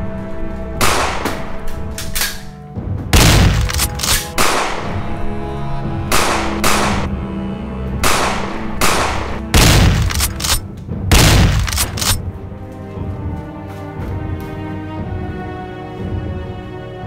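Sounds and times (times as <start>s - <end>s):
film score of sustained notes: 0.0s - 17.0s
gunshots: 0.8s - 1.4s, 3.2s - 5.0s, 6.1s - 7.1s, 8.0s - 12.2s.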